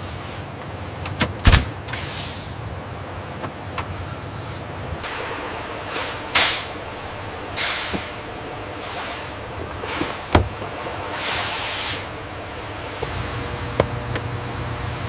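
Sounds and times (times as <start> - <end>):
released air hiss: 1.9 - 2.7, 3.9 - 10.4, 11.1 - 12.2
steady machine hum: 2.6 - 15.0.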